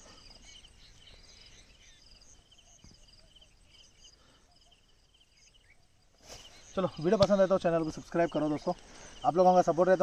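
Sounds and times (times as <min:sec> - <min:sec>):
insects chirping in high trills: 0:00.0 - 0:10.0.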